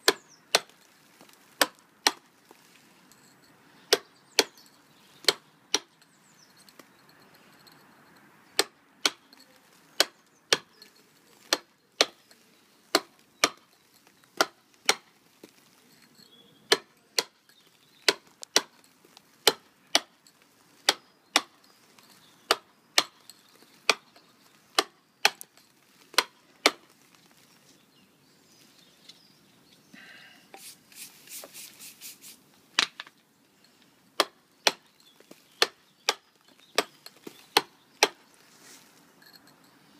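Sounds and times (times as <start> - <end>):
mason's tool striking stone: 0.0 - 0.8, 3.9 - 4.6, 5.2 - 6.0, 8.6 - 12.3, 12.9 - 13.8, 14.4 - 15.1, 16.7 - 20.2, 20.8 - 21.6, 22.4 - 26.8, 34.2 - 38.2.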